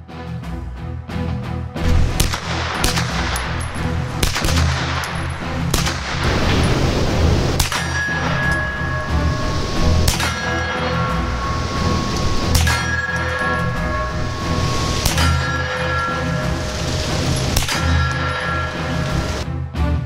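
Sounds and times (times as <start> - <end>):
gunshots: 1.8 - 11.6, 12.5 - 19.4
steel targets ringing: 1.9 - 19.4.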